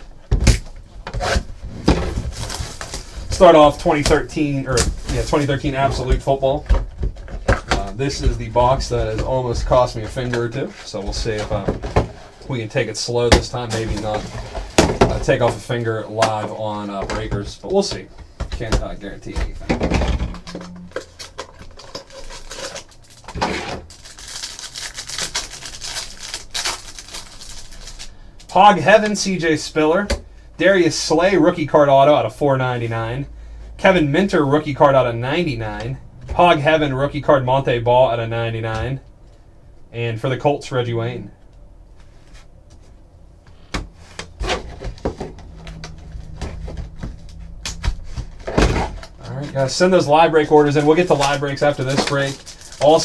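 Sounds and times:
cards scraping and rustling: 20.9 - 28.1
plastic wrapper crinkling: 20.9 - 28.6, 50.5 - 53.0.

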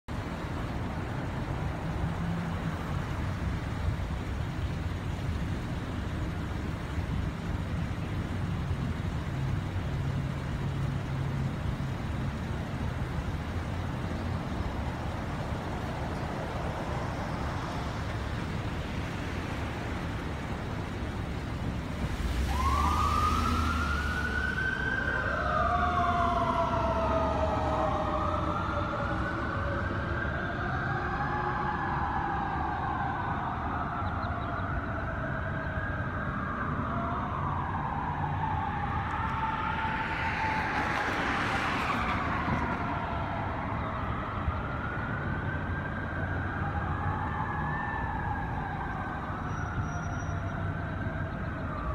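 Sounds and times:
car engines idling and passing: 0.0 - 51.9
street traffic rumble: 0.0 - 51.9
emergency vehicle siren wailing: 0.2 - 51.9.

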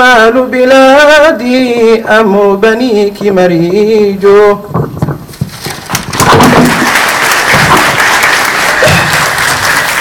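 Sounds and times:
audience applauding: 5.8 - 10.0.

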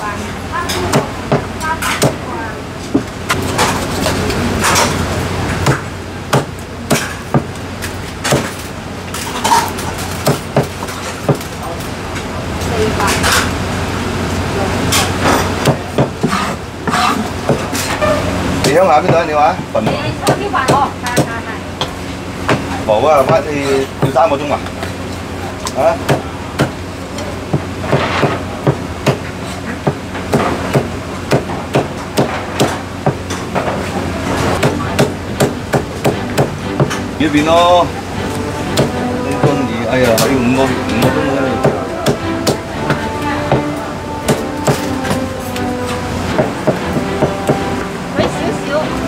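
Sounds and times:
cleaver chopping on wooden block: 34.6 - 37.0.

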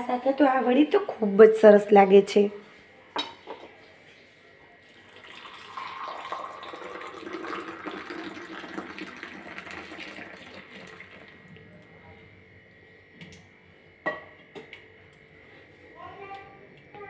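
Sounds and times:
tea pouring into a clay cup: 4.8 - 11.9.

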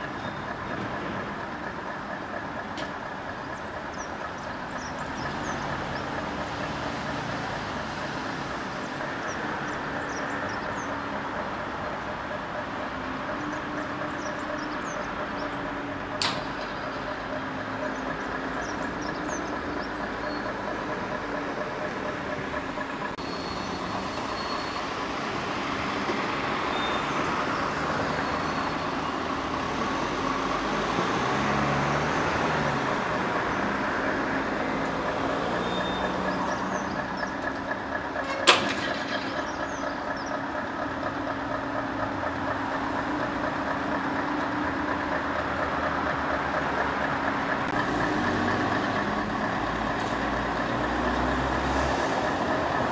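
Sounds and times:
truck diesel engine running: 0.0 - 52.9.

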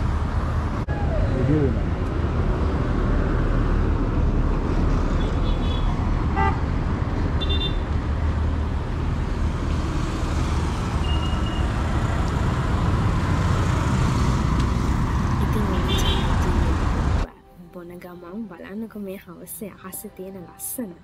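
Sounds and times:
road traffic rumbling: 0.0 - 17.3
vehicle horn toots: 5.2 - 6.6, 7.4 - 7.9, 15.8 - 16.4.

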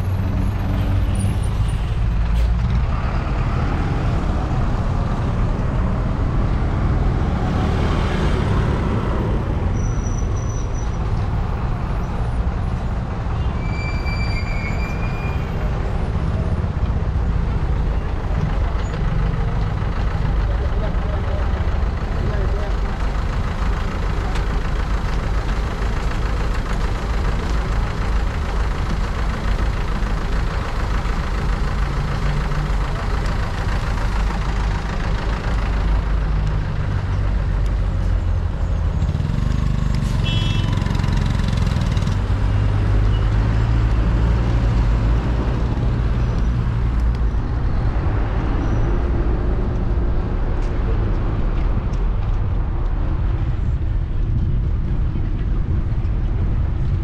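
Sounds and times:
cars and motorcycles passing: 0.0 - 13.6, 15.0 - 57.0
high-pitched squeal: 13.5 - 15.8.

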